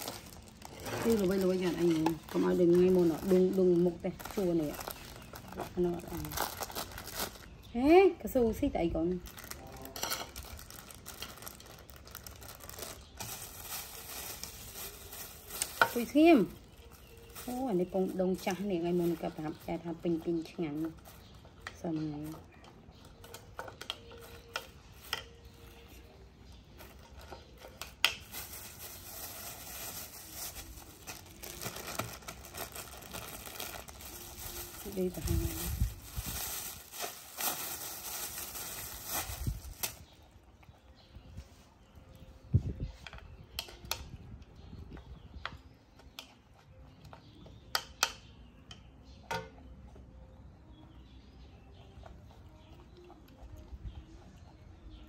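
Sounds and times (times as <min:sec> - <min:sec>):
plastic bag crinkling: 0:00.0 - 0:07.7, 0:09.2 - 0:19.6, 0:26.8 - 0:40.2.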